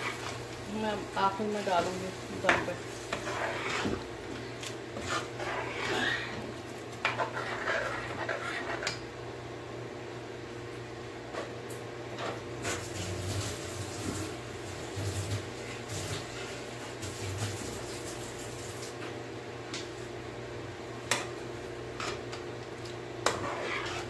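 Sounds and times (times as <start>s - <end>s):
spatula stirring in a frying pan: 0.0s - 9.0s, 21.1s - 22.5s, 23.1s - 24.0s.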